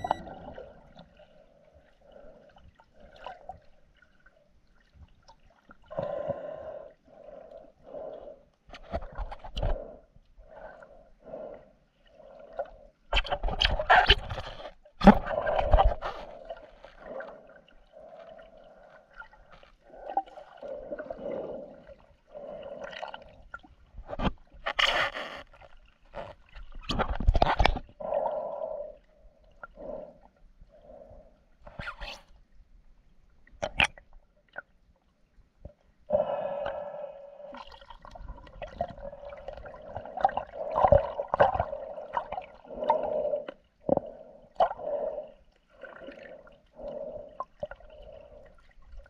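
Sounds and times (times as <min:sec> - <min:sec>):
muffled underwater bubbling: 0:00.0 - 0:03.8.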